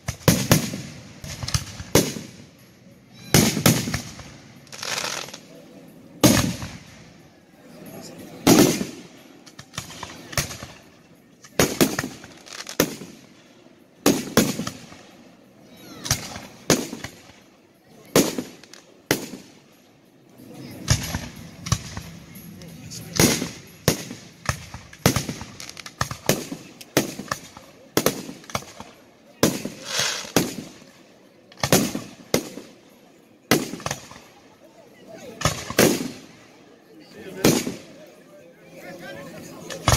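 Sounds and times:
fireworks bursting: 0.0s - 5.5s, 6.2s - 7.3s, 7.9s - 13.4s, 14.0s - 15.2s, 16.0s - 17.5s, 18.1s - 19.6s, 20.6s - 32.8s, 33.5s - 34.4s, 35.4s - 36.4s, 37.3s - 38.0s.

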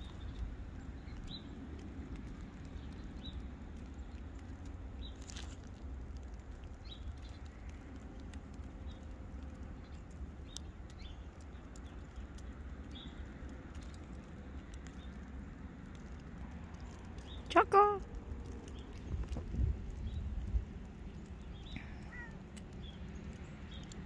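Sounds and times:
low steady rumble: 0.0s - 24.0s
small bird chirping: 20.0s - 24.0s.

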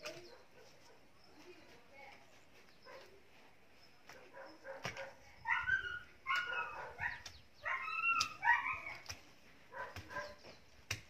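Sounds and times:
dog barking: 0.3s - 1.0s, 2.8s - 3.1s, 4.1s - 8.9s, 9.7s - 10.4s
hoe chopping soil: 8.0s - 11.0s.

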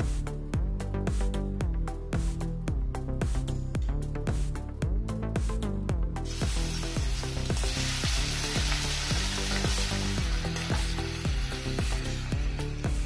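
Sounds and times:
background music with beat: 0.0s - 13.0s
garlic sizzling in hot oil: 6.2s - 13.0s.

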